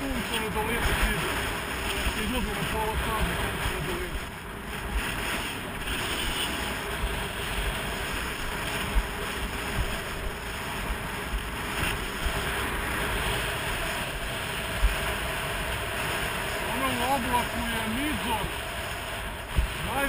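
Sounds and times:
wind rushing on microphone: 0.0 - 20.0
skis hissing on snow: 16.2 - 18.5.

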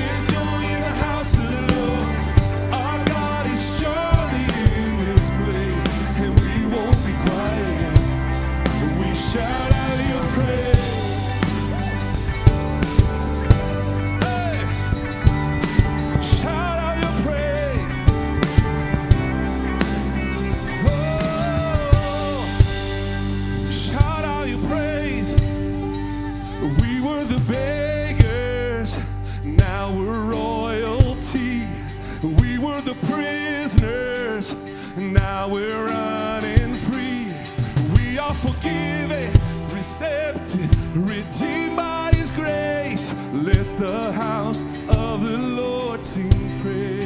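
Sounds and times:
man and woman singing: 0.0 - 12.5, 14.1 - 14.9, 16.1 - 18.1, 20.7 - 47.0
backing singers: 0.0 - 28.6
worship band playing: 0.0 - 47.0.

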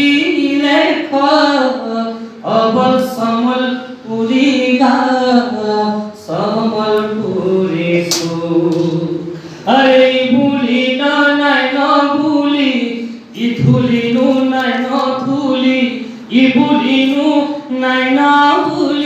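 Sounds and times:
singer breathing: 9.2 - 9.7.

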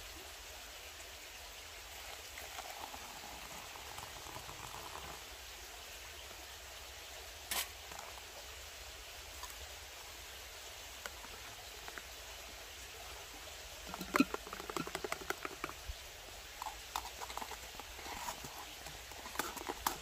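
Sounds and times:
hot water pouring into metal mug: 1.9 - 5.3, 13.0 - 20.0.

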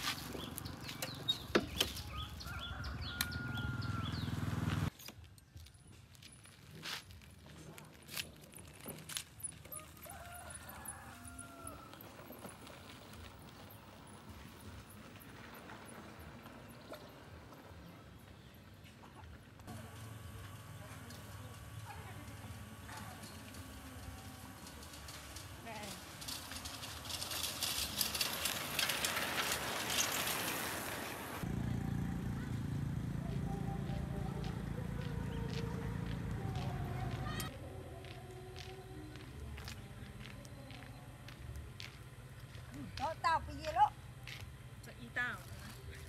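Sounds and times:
bicycles rattling on rough road: 5.5 - 37.5.

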